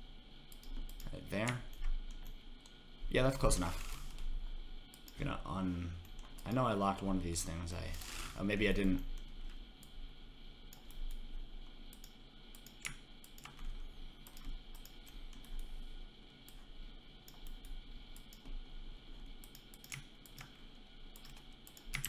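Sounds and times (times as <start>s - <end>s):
faint electrical hum: 0.0s - 22.0s
computer mouse and keyboard clicks: 11.9s - 15.8s, 19.4s - 20.6s, 21.2s - 22.0s.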